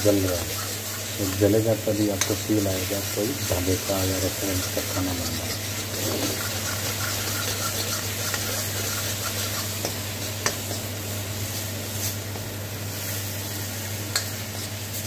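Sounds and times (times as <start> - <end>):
masala sizzling in oil: 0.0 - 15.0
metal spatula scraping pan: 3.4 - 10.8.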